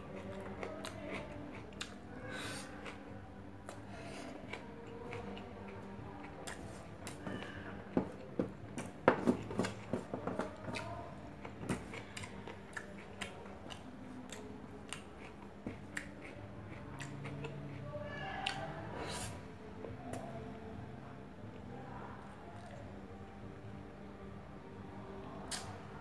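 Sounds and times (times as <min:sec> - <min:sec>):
chewing with wet clicks: 0:00.1 - 0:07.6, 0:10.6 - 0:18.8, 0:25.4 - 0:25.8.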